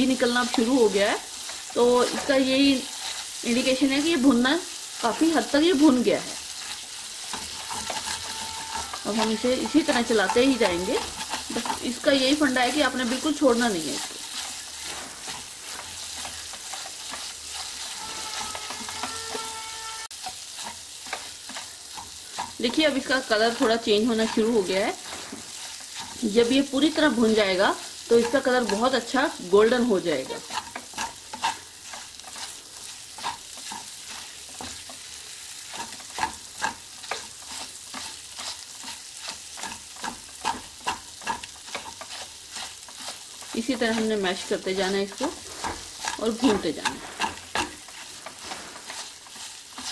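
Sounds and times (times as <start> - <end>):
food sizzling in a pan: 0.0 - 49.9
spatula scraping a pan: 0.0 - 49.9.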